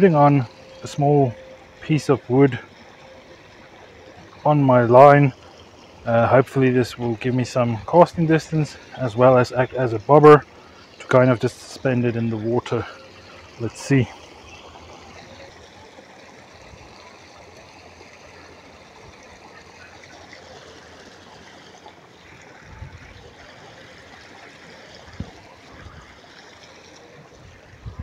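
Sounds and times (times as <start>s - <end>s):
water trickling into pond: 0.0s - 28.0s.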